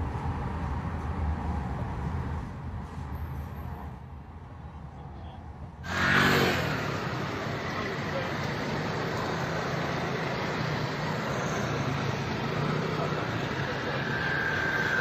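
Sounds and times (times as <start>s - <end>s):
street traffic: 0.0s - 15.0s
motor scooter engine revving: 5.9s - 15.0s.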